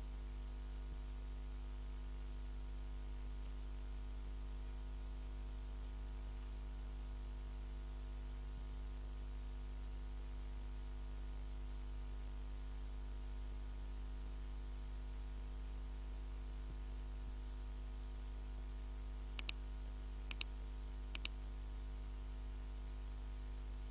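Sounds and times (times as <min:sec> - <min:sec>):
low electrical hum and hiss: 0:00.0 - 0:23.9
computer mouse clicks: 0:19.4 - 0:19.6, 0:20.3 - 0:20.5, 0:21.1 - 0:21.4.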